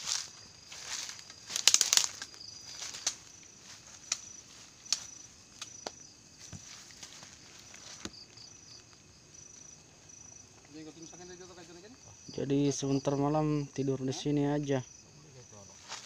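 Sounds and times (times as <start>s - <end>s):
footsteps on forest floor: 0.0s - 10.7s, 15.7s - 16.0s
faint insects chirping: 0.0s - 16.0s.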